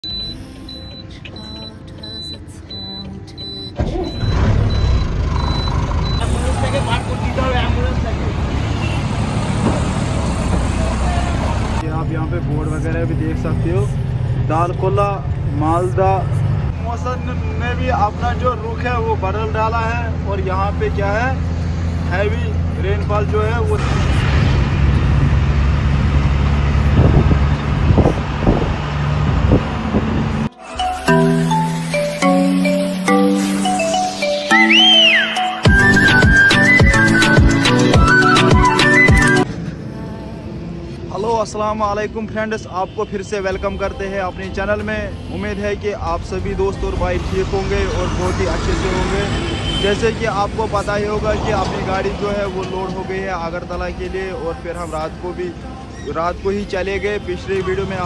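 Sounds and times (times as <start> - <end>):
truck warning buzzer beeping: 0.0 - 6.4
truck engine running: 0.0 - 17.4
road noise: 0.0 - 58.0
loud low engine rumble: 3.7 - 30.5.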